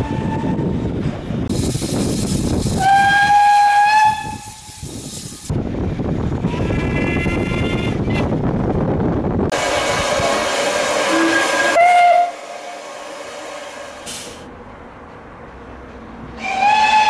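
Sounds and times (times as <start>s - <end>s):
train running noise: 0.0s - 17.0s
steam engine hissing: 1.5s - 5.5s, 9.5s - 14.5s
steam locomotive whistle: 2.8s - 4.7s, 9.6s - 12.9s, 16.4s - 17.0s.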